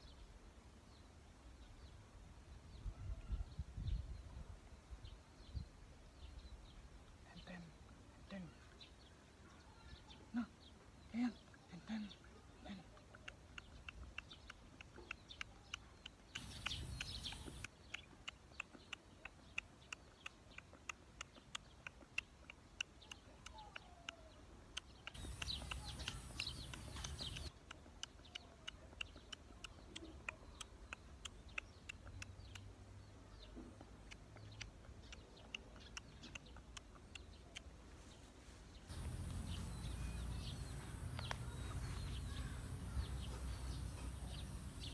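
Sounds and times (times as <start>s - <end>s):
birds chirping: 4.8s - 44.9s.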